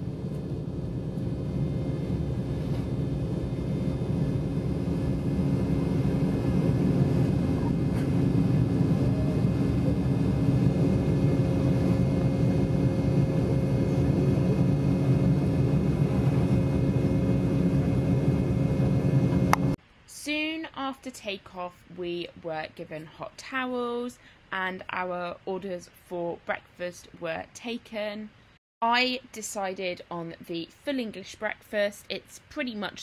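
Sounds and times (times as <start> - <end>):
jet engines at takeoff power: 0.0 - 19.8.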